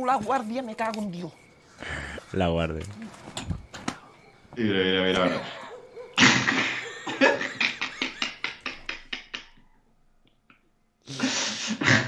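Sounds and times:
hearty laughter: 5.0s - 9.6s.

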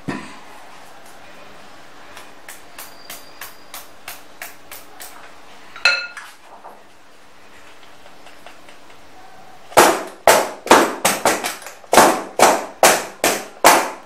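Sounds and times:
ringing metallic clink: 5.8s - 6.2s.

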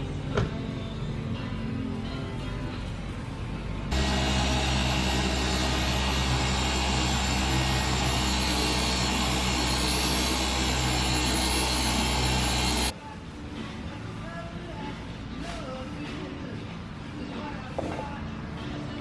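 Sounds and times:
electric car polisher running: 3.9s - 12.9s.

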